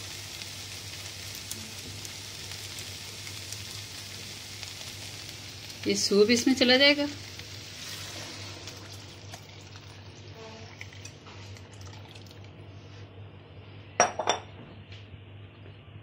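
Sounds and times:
liquid splashing and bubbling: 8.1s - 12.6s.

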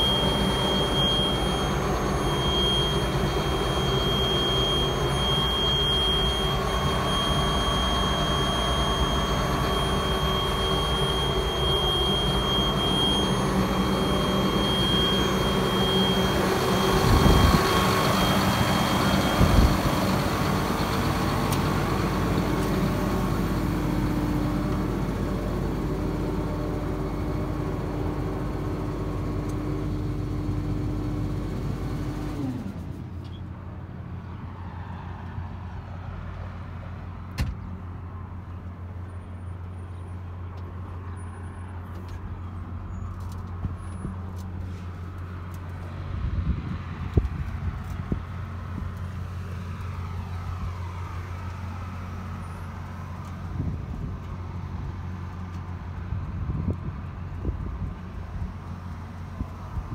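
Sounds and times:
thin high whine: 0.0s - 27.8s
diesel engine idling: 0.0s - 34.3s.

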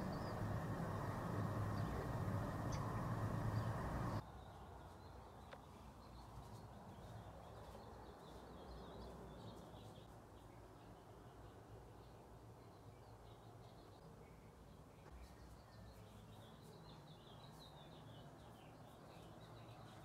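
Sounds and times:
faint bird chirps: 0.0s - 4.7s
outdoor background noise: 0.0s - 20.0s.

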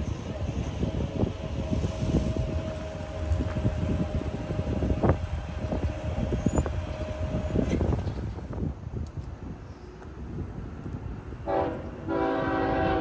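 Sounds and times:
train rumbling past: 0.0s - 13.0s
clanks and knocks from train wheels: 2.3s - 9.2s.

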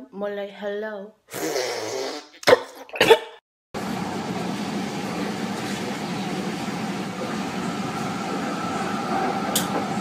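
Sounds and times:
mouth sucking sounds: 1.3s - 2.3s
vehicle cabin running noise: 3.8s - 10.0s.

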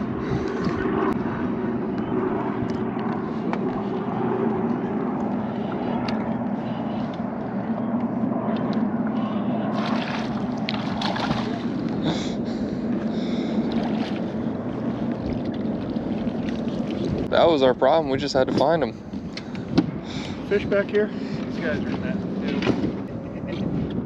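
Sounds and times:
boat motor humming: 0.0s - 24.0s
wind: 0.0s - 24.0s
water noise: 8.3s - 24.0s
net splashing in water: 9.8s - 11.7s.

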